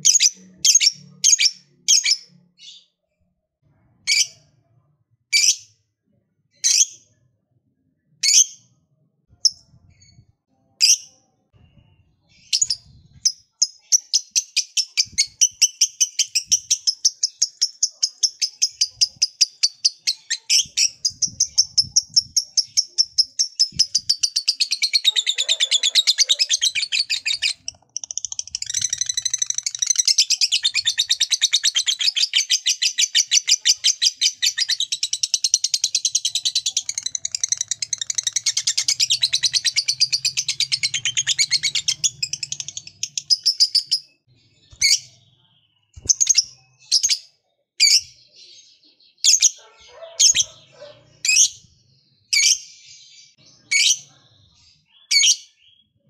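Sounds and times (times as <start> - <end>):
lovebird chattering song: 12.3 - 44.1, 46.0 - 48.2, 49.3 - 51.6.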